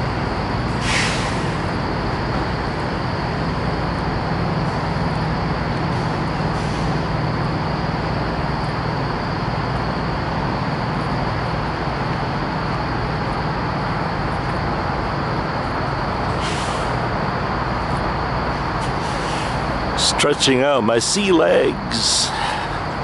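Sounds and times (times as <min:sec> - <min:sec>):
diesel truck engines idling: 0:00.0 - 0:23.0
brief hiss: 0:00.8 - 0:01.6.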